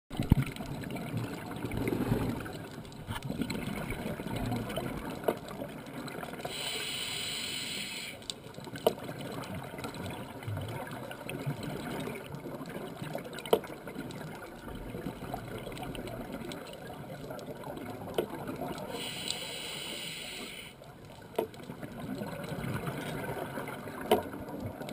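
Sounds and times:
underwater bubbles gurgling: 0.1s - 24.9s
regulator inhalation hiss: 6.5s - 8.2s, 18.9s - 20.8s.

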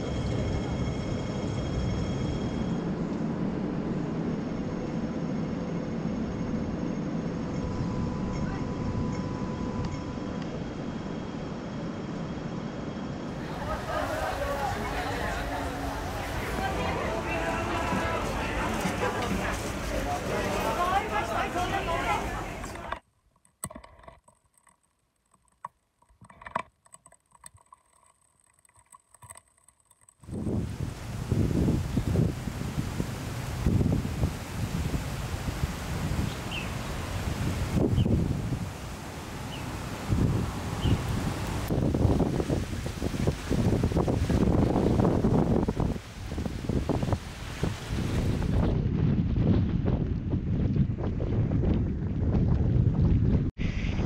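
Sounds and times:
faint steady hums: 0.0s - 23.0s
street ambience: 0.0s - 23.0s, 35.8s - 42.6s
wind buffeting microphone: 30.2s - 54.0s.

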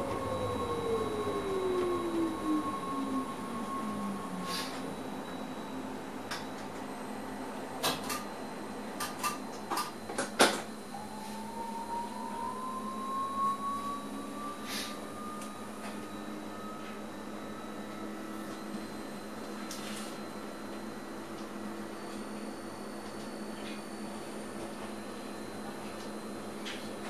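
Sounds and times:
electric motor whine rising: 0.0s - 7.2s, 10.9s - 19.4s
faint high electronic hum: 0.0s - 24.4s.

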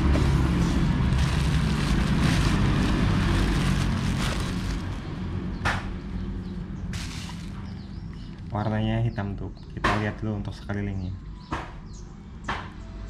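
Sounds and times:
bubble wrap crinkling: 0.0s - 5.3s, 6.9s - 8.5s.

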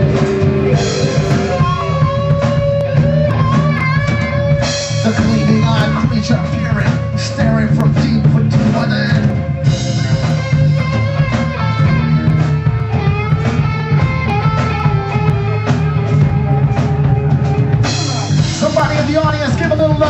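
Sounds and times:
bass and guitar: 0.0s - 20.0s
drum kit beat: 0.0s - 20.0s.

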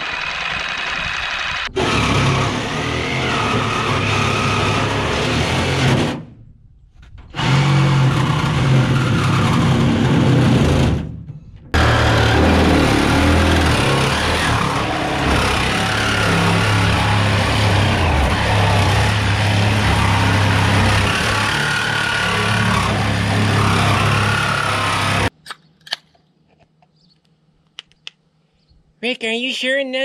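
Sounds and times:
power saw cutting aluminum: 0.0s - 6.3s, 7.3s - 11.1s, 11.8s - 25.3s.

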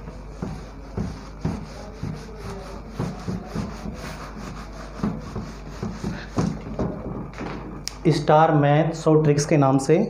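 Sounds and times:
whiteboard being wiped: 0.0s - 7.0s.

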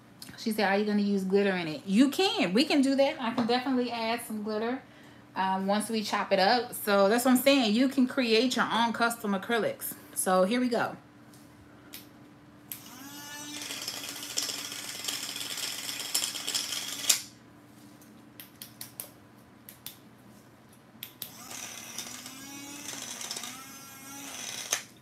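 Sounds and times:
electric grinder whining: 12.7s - 17.2s, 21.2s - 25.0s.

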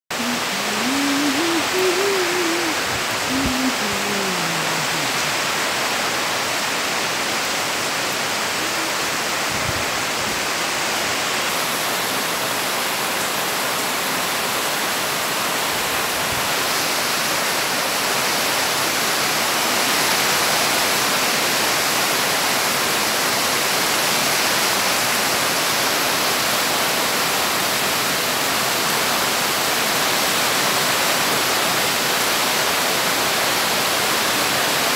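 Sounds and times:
wavering tone: 0.1s - 5.3s
heavy rain on foliage: 0.1s - 34.9s.

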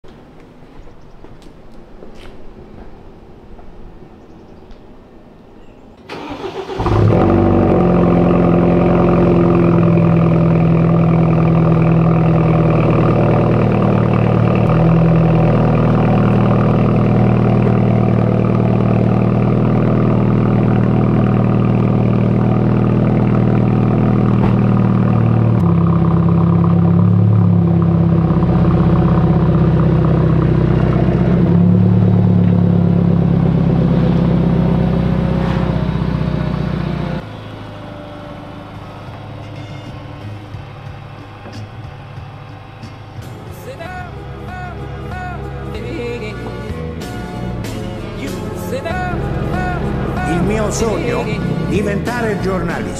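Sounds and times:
car engine starting and running: 0.0s - 52.9s.

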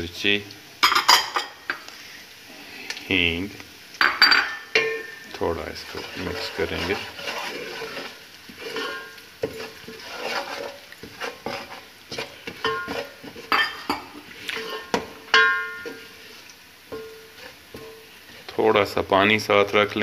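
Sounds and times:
spices sizzling in oil: 0.0s - 20.0s
spoon scraping and knocking pot: 4.0s - 16.1s, 16.9s - 18.6s.

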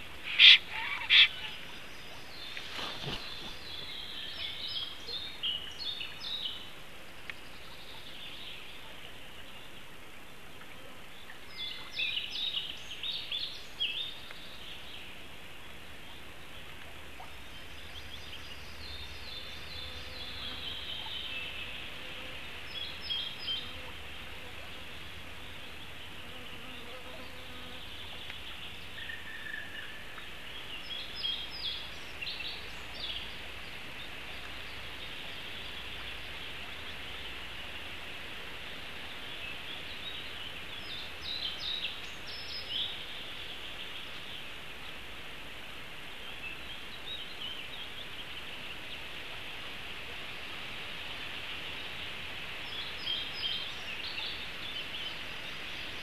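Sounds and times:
birds trilling: 0.0s - 3.9s
steady high hiss: 0.0s - 56.0s.

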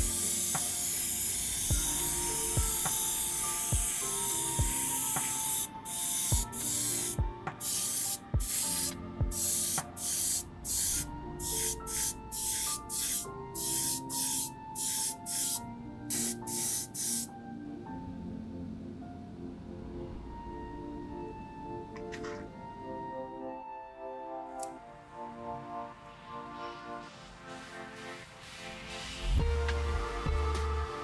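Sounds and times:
airbrush spraying hiss: 0.0s - 17.3s
background music: 0.0s - 31.0s.

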